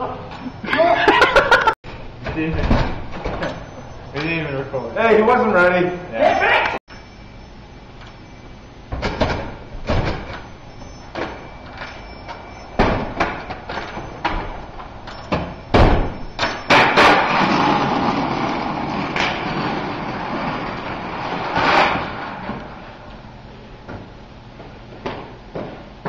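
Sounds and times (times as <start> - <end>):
casters rolling across tile floor: 16.5 - 22.8.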